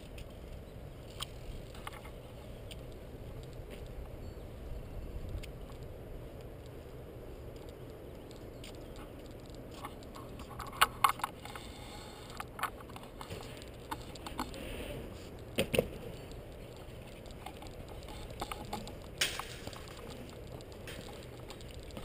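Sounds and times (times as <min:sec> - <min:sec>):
steady low rumble: 0:00.0 - 0:22.0
sharp clicks and knocks: 0:07.5 - 0:14.6, 0:15.4 - 0:22.0.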